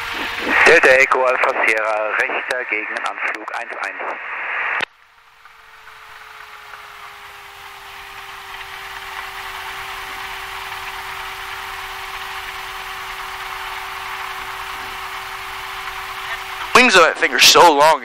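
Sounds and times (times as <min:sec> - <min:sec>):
airplane engine idling: 0:00.0 - 0:03.5, 0:04.9 - 0:18.0
radio call: 0:00.0 - 0:06.2, 0:16.1 - 0:18.0.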